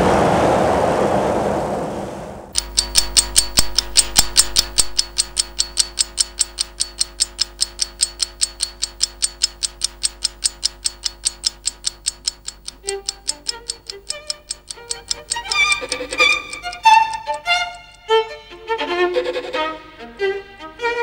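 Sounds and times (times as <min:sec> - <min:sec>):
clock ticking quickly: 0:02.5 - 0:18.4.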